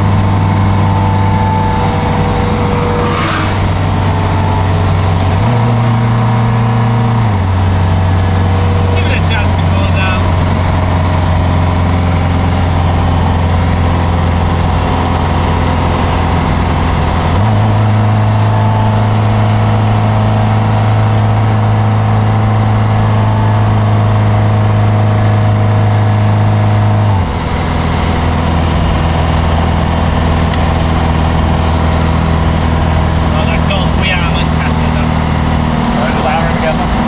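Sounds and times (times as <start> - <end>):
car engine running from cabin: 0.0 - 37.0.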